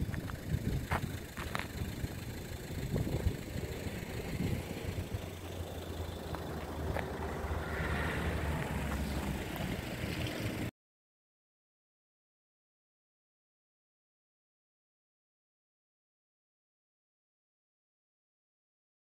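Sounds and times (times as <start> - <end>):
vehicle engine idling: 0.0 - 10.7.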